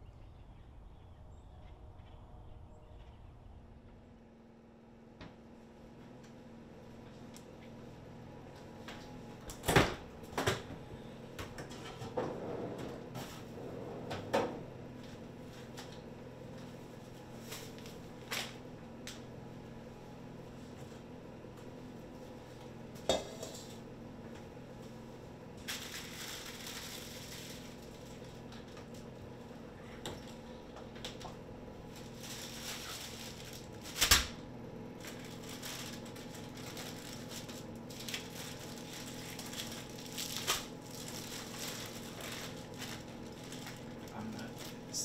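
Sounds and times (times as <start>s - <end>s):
steady low hum: 0.0s - 45.0s
food wrapping rustling and crinkling: 15.0s - 18.6s, 25.6s - 29.2s, 31.0s - 45.0s.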